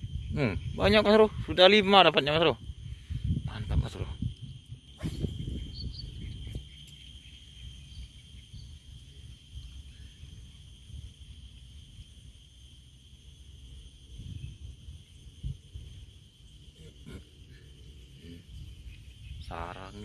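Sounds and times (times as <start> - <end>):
wind rumble on microphone: 0.0 - 6.9, 14.0 - 16.2
high insect drone: 0.0 - 20.0
faint bird chirps: 2.9 - 11.0, 14.2 - 20.0.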